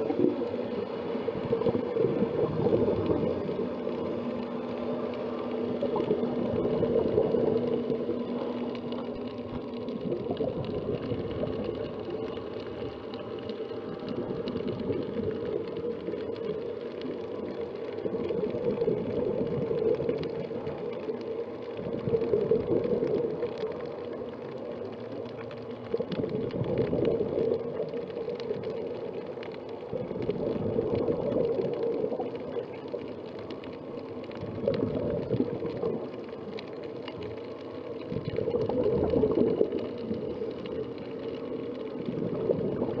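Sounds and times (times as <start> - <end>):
steady watery hiss: 0.0 - 43.0
underwater regulator bubble bursts: 38.1 - 40.3.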